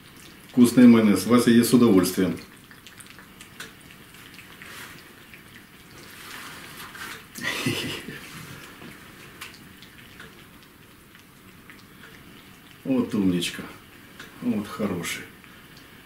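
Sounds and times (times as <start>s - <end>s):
cat licking wetly: 2.4s - 12.9s.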